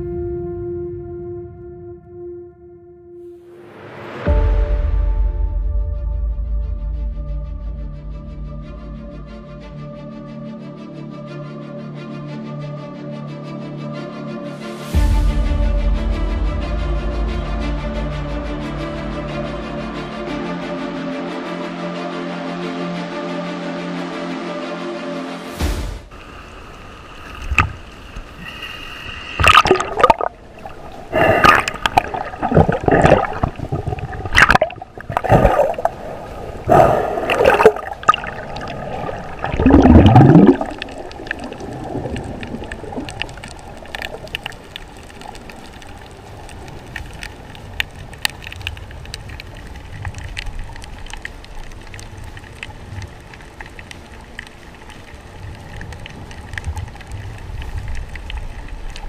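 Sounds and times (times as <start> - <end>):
underwater hiss: 25.5 - 44.5
water splashing: 25.8 - 59.0
bubbles gushing: 29.4 - 46.7.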